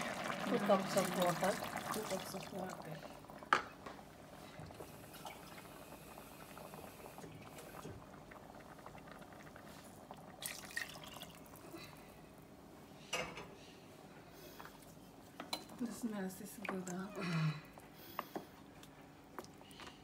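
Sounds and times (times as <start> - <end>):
water poured into pot: 0.0 - 3.6, 4.6 - 11.8.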